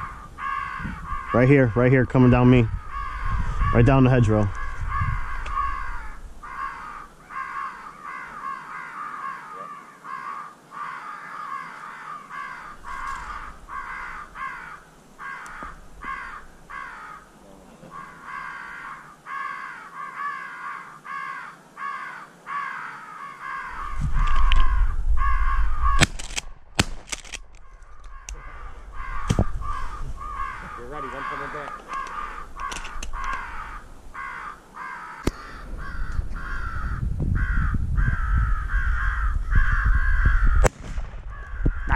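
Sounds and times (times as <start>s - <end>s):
crows cawing: 0.0s - 26.3s, 27.2s - 41.9s
sharp cracks: 12.8s - 14.6s, 25.8s - 33.8s, 35.2s - 36.2s, 40.5s - 41.9s.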